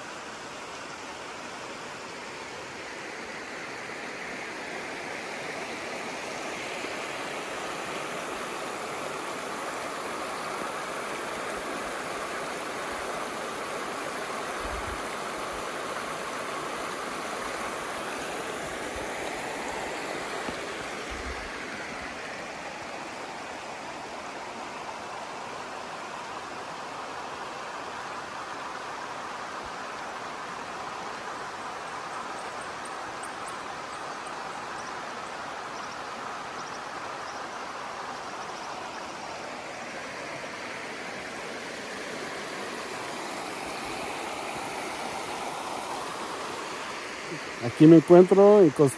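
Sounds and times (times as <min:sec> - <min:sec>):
river rushing over rocks: 0:00.0 - 0:48.9.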